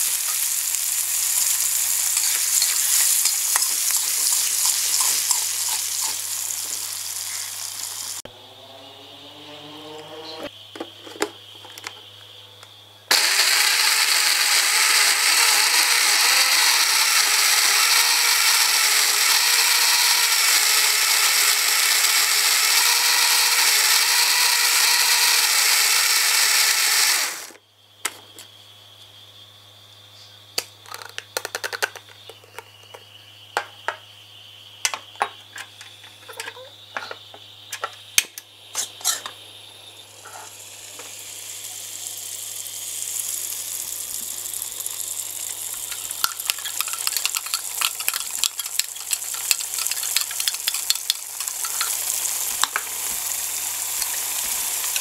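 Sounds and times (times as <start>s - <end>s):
blender grinding: 0.0s - 8.2s, 13.1s - 27.6s, 40.2s - 55.0s.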